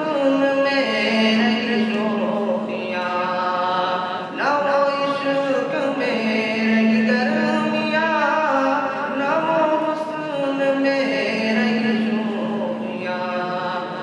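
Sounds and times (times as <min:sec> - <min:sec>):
man singing into a microphone: 0:00.0 - 0:14.0
steady hum: 0:00.0 - 0:14.0.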